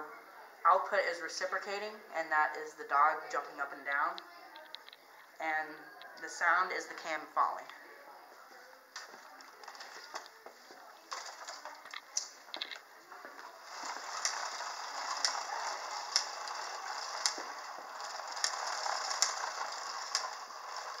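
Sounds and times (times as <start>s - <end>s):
chain drive rattling: 13.7s - 21.0s.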